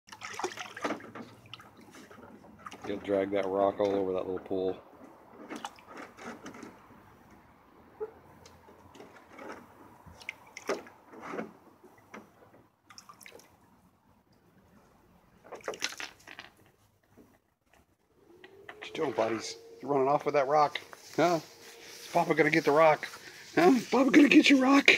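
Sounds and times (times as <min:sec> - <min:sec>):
animal splashing in water: 0:00.1 - 0:03.0, 0:10.1 - 0:11.0, 0:12.8 - 0:13.6.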